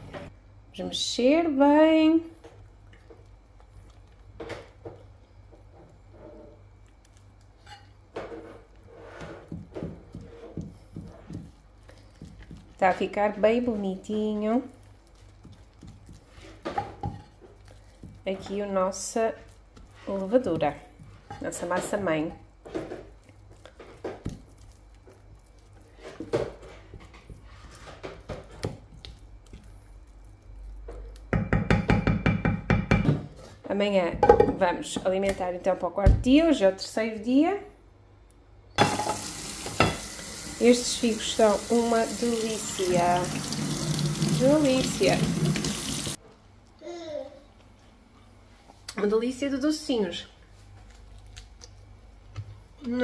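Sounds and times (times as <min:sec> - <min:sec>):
spoon stirring sticky dough: 0:02.4 - 0:32.7.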